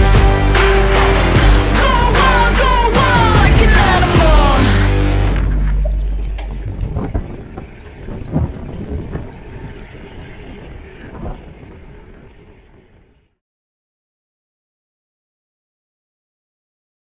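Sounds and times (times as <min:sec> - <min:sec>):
bike rolling on rough asphalt: 0:05.4 - 0:13.4
wind buffeting microphone: 0:05.8 - 0:13.3
bike knocking over bumps: 0:06.3 - 0:10.0.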